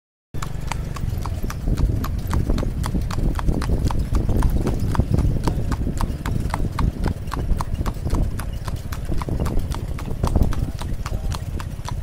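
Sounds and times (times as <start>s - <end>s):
horse hooves trotting on asphalt: 0.4s - 12.0s.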